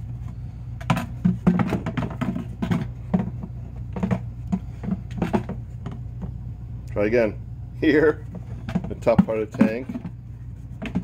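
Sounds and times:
low hum: 0.0s - 11.0s
plastic tank knocking and scraping: 0.8s - 6.3s, 8.2s - 11.0s.

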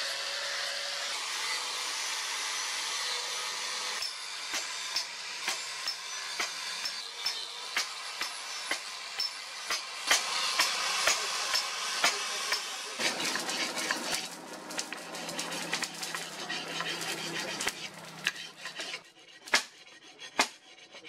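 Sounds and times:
angle grinder sanding steel: 0.0s - 21.0s
blade scraped on sharpening stone: 13.0s - 21.0s.

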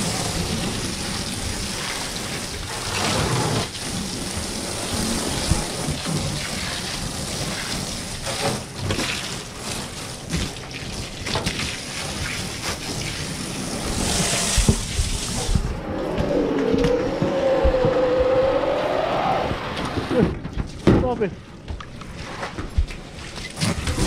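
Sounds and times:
hose water spattering on metal gutter: 0.0s - 15.7s.

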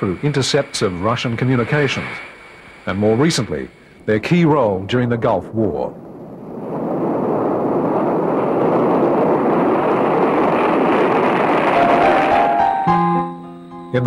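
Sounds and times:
jet engines roaring: 0.0s - 4.6s, 5.9s - 13.1s
music: 11.7s - 14.0s.

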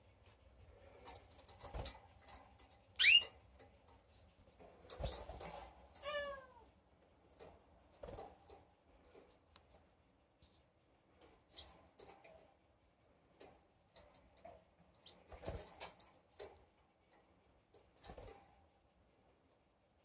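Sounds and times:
clicks and knocks from wire cages: 0.0s - 18.8s
canary chirping: 2.9s - 3.5s, 15.0s - 15.4s.

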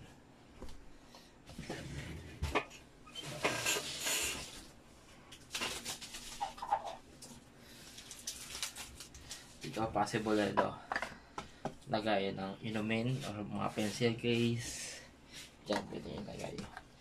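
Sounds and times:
table rubbing against bedding: 1.5s - 4.6s.

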